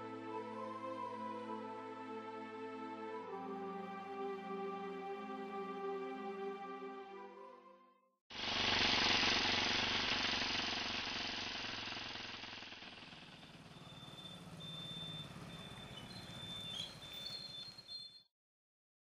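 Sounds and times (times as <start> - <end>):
motorcycle engine running: 8.4 - 17.8.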